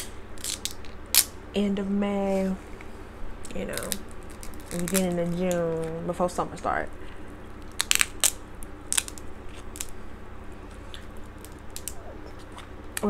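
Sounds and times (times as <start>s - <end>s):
crab shell cracking: 0.0s - 1.3s, 3.4s - 6.0s, 7.5s - 10.0s, 10.7s - 13.0s
steady low hum: 0.0s - 13.0s.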